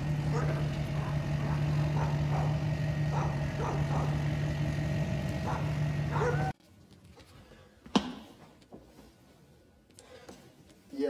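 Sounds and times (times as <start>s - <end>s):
diesel truck engine humming: 0.0s - 6.6s.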